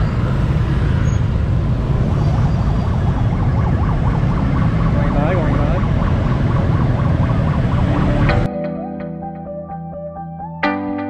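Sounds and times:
road traffic rumble: 0.0s - 8.5s
emergency siren warbling: 1.7s - 8.7s.

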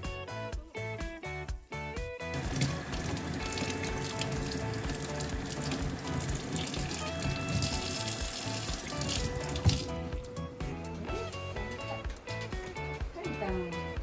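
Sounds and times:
tap running into steel sink: 2.4s - 10.4s.

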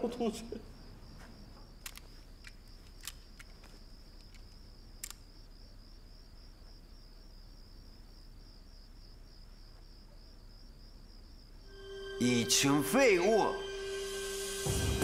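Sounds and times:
crickets chirping: 0.0s - 15.0s
faint sharp clicks: 1.8s - 5.3s.

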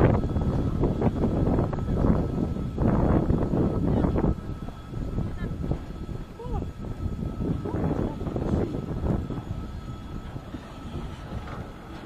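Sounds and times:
freight train rumbling: 0.0s - 12.0s
wind buffeting microphone: 0.0s - 12.0s.

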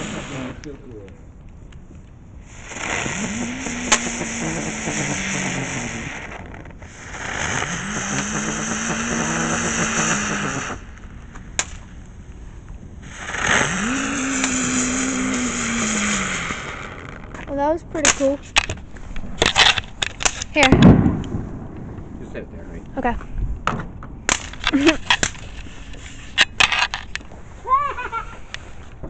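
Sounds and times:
fireworks hissing sparks: 0.0s - 1.1s, 2.4s - 21.5s, 24.3s - 29.0s
low buzzing tone: 0.0s - 22.3s
fireworks cracking: 0.0s - 29.0s.

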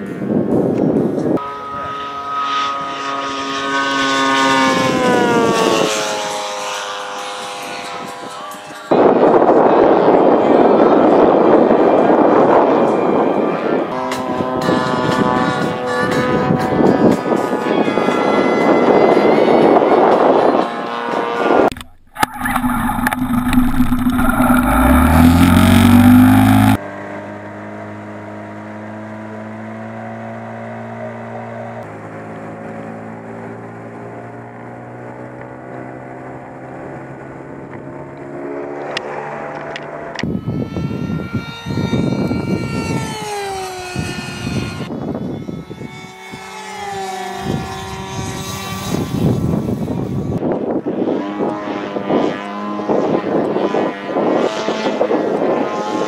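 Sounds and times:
propeller plane overhead: 0.0s - 56.0s
outboard motor running: 21.7s - 26.8s.

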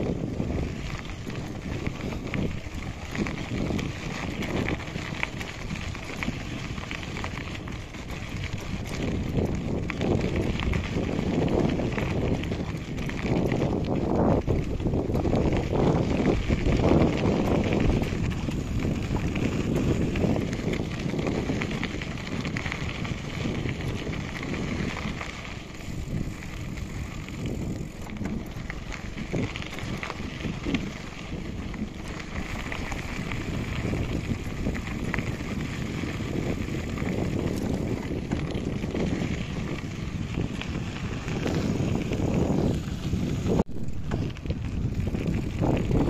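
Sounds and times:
bicycle rolling rumble: 0.0s - 46.0s
wind noise on microphone: 0.0s - 46.0s.

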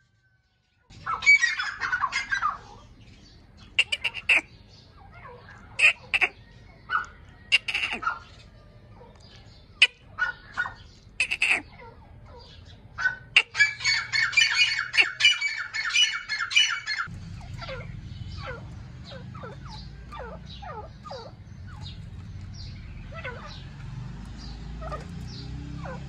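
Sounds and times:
francolin harsh calls: 3.6s - 6.4s
low background rumble: 16.8s - 23.5s.

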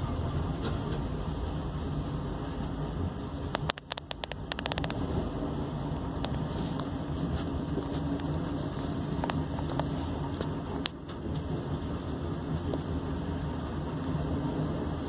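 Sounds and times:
heavy diesel engine under load: 0.0s - 15.0s
light ticks: 3.5s - 5.0s.

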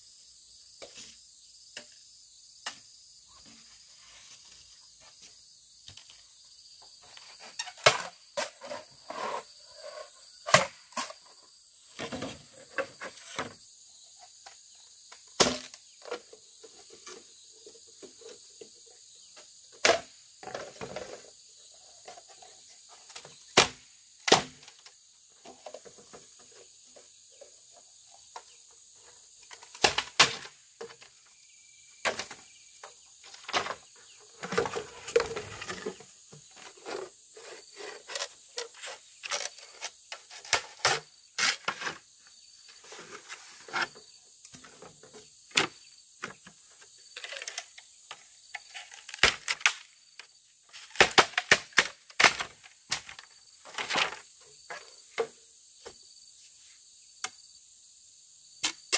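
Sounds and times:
rustling from handwork: 41.4s - 45.1s.

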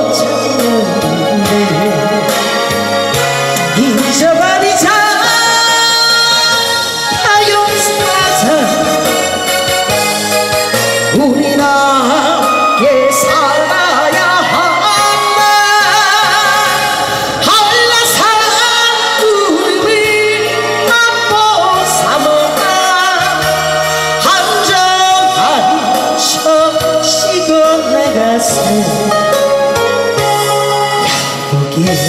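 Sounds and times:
woman singing into microphone: 0.0s - 2.9s, 3.5s - 10.0s, 11.0s - 32.0s
recorded backing track: 0.0s - 32.0s.

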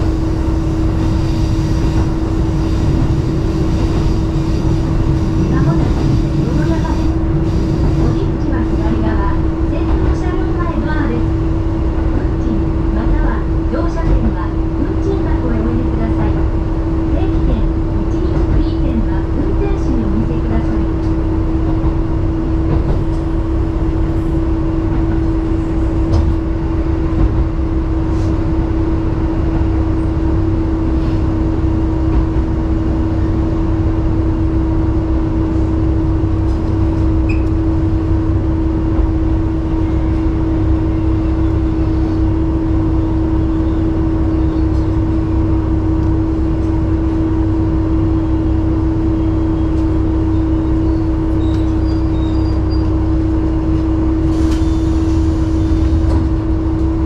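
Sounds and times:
railcar engine hum: 0.0s - 57.0s
wheels rumbling on rail: 0.0s - 57.0s.

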